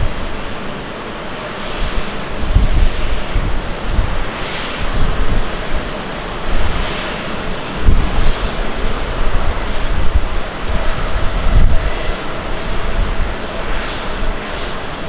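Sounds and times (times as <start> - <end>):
jet engines on takeoff roll: 0.0 - 15.0.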